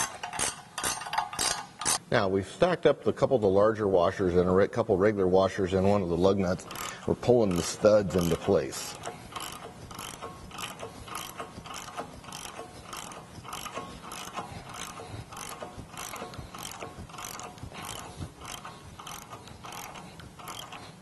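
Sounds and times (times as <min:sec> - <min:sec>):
ratchet wrench clicking: 0:00.0 - 0:02.0, 0:06.6 - 0:21.0.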